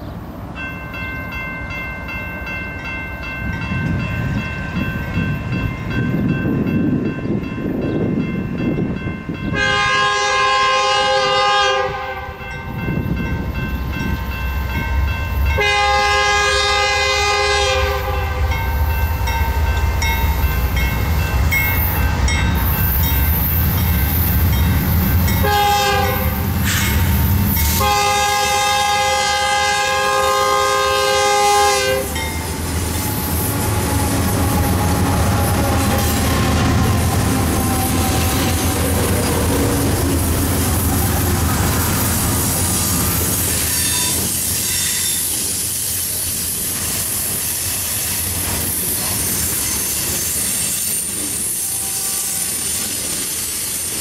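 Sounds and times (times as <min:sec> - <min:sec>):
ringing crossing bell: 0:00.6 - 0:09.8, 0:12.4 - 0:15.8, 0:18.4 - 0:25.6, 0:32.1 - 0:33.1
low diesel locomotive rumble: 0:02.1 - 0:54.0
locomotive air horn blasts: 0:09.5 - 0:12.4, 0:15.6 - 0:18.6, 0:25.4 - 0:27.1, 0:27.7 - 0:32.2, 0:51.6 - 0:52.5.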